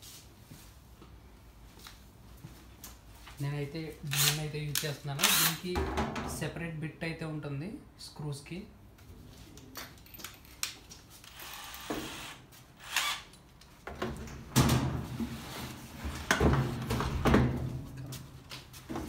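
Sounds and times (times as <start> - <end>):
drill whirring: 4.1 - 4.4, 5.2 - 5.6, 11.3 - 13.3.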